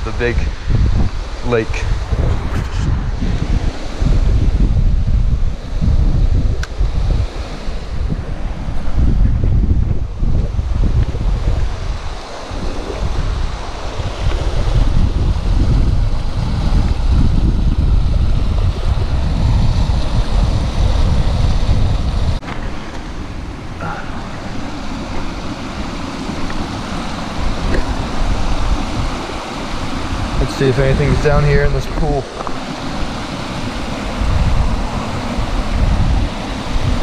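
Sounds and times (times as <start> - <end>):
wind buffeting microphone: 0.0 - 37.0
water rushing over rocks: 10.0 - 37.0.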